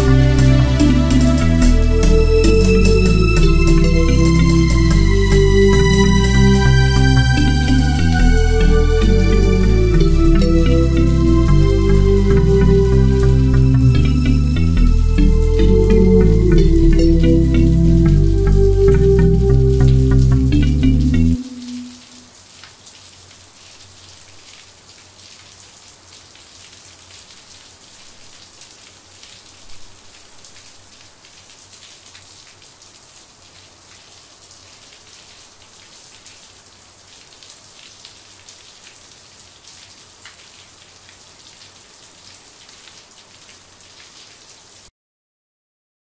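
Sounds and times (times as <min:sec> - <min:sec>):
low hum: 0:00.0 - 0:22.1.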